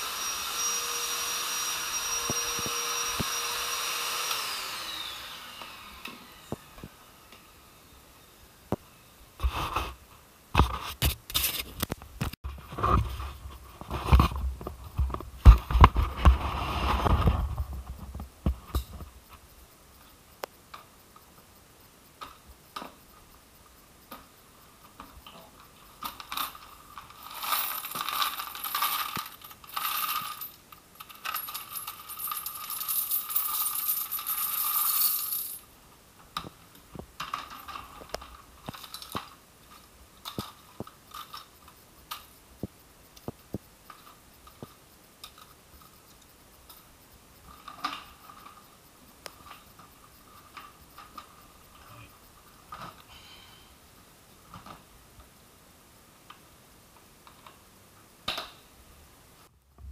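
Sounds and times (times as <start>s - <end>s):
coins clinking in plastic drum: 26.0s - 35.6s
rush of jingling coins: 26.4s - 35.6s.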